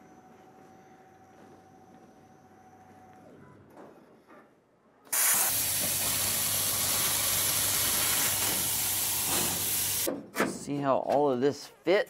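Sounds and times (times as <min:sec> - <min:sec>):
plasma torch hissing: 0:05.1 - 0:10.1.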